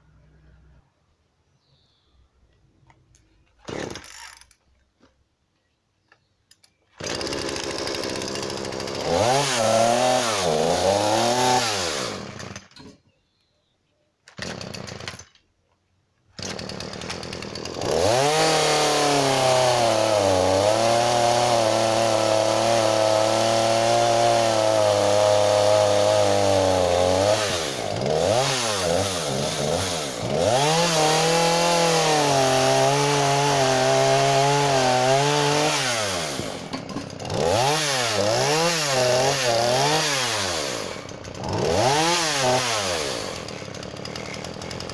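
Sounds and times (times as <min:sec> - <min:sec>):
chainsaw revving and cutting: 0:03.7 - 0:04.5, 0:07.0 - 0:12.7, 0:14.4 - 0:15.3, 0:16.4 - 0:44.9.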